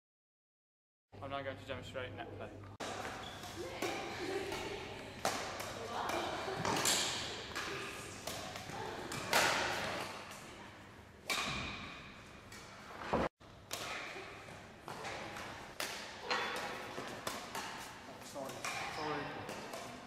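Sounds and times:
rackets hitting shuttlecock: 2.8s - 10.5s, 11.2s - 12.8s, 13.4s - 20.0s.

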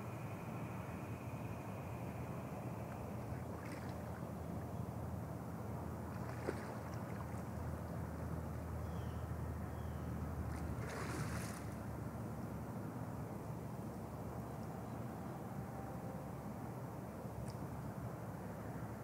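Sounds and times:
water splashes: 3.2s - 4.4s, 6.1s - 7.8s, 10.5s - 11.8s
water sloshing: 3.2s - 4.8s, 6.1s - 7.8s, 10.5s - 11.8s.

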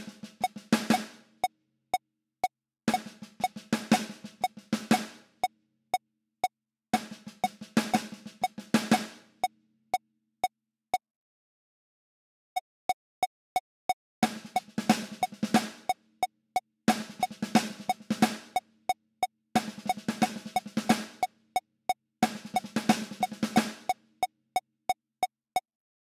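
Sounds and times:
electronic snare drum roll: 0.0s - 1.2s, 2.9s - 5.2s, 7.0s - 9.2s, 14.2s - 16.0s, 16.9s - 18.6s, 19.6s - 21.3s, 22.2s - 24.0s.

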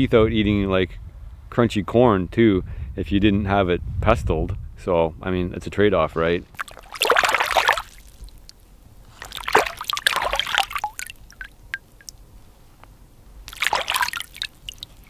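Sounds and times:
hands splashing in water: 6.5s - 12.2s, 13.5s - 15.0s
clams clicking: 9.2s - 12.2s, 13.5s - 15.0s.

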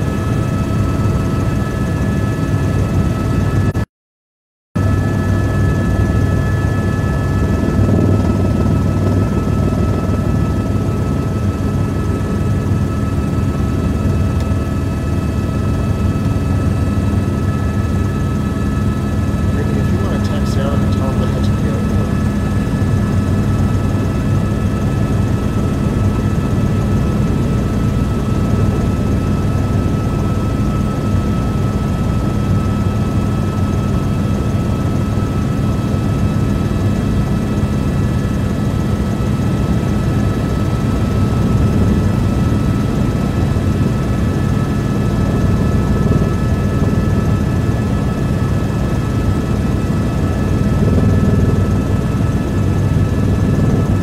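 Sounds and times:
helicopter engine and rotor noise: 0.0s - 3.9s, 4.8s - 54.0s.

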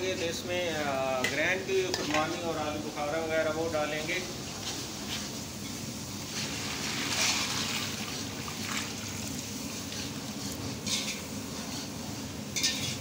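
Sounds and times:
sugar syrup bubbling: 6.4s - 10.4s.

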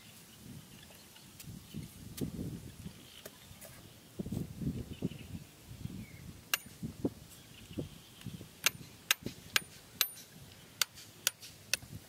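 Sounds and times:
hand tool striking bamboo: 8.6s - 11.9s.

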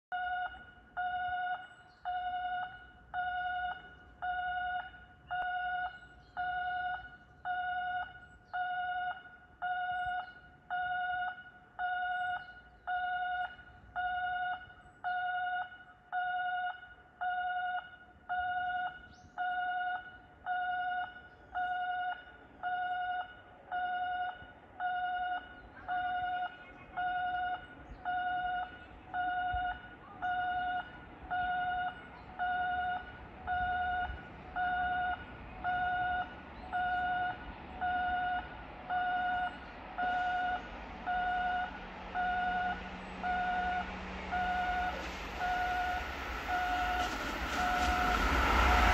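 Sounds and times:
electronic railway warning bell: 0.1s - 48.9s.

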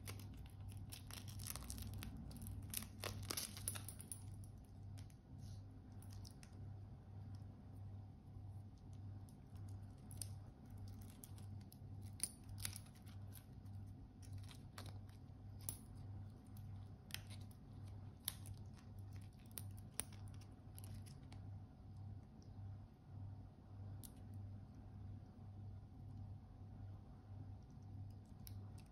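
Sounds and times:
watch bracelet clicking and rattling: 0.0s - 5.2s, 9.3s - 21.4s.

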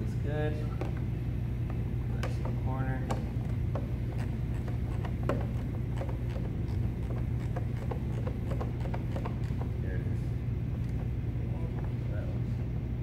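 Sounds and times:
steady low hum: 0.0s - 13.0s
ratchet clicking: 2.2s - 9.8s.

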